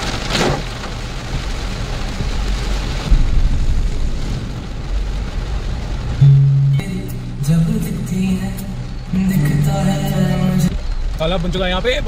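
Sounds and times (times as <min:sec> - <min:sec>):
water splashing on car: 0:00.0 - 0:06.2
engine and tyres rumbling: 0:00.0 - 0:12.0
rain and spray rushing: 0:00.0 - 0:12.0.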